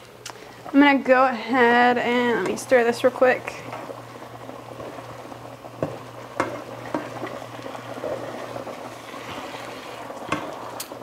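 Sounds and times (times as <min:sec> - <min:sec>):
water boiling in pot: 0:00.0 - 0:11.0
spatula scraping skillet: 0:05.8 - 0:10.8.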